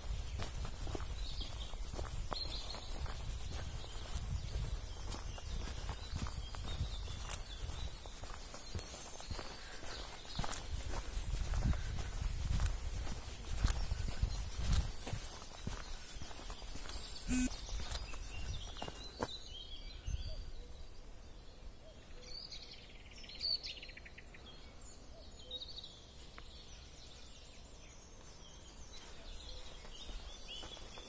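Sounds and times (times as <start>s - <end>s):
birds chirping and calling: 0.1s - 21.0s
bird rapid trill: 17.2s - 18.7s.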